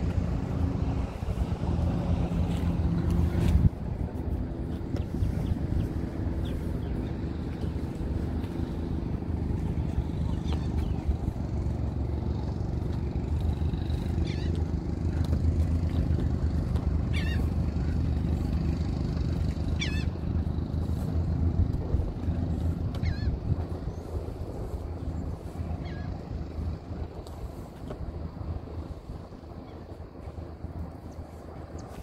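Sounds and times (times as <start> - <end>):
low outdoor rumble: 0.0 - 32.0
falling bird calls: 17.1 - 18.0.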